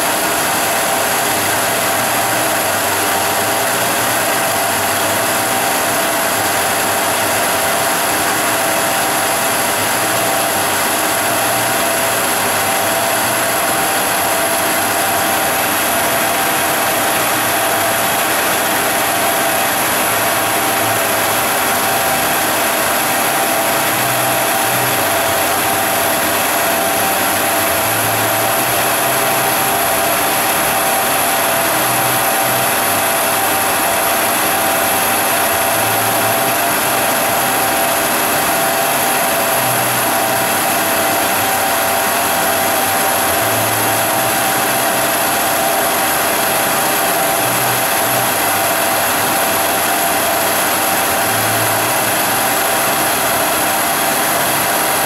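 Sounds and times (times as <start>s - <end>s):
industrial vacuum running: 0.0s - 55.0s
metal lathe spinning: 0.0s - 55.0s.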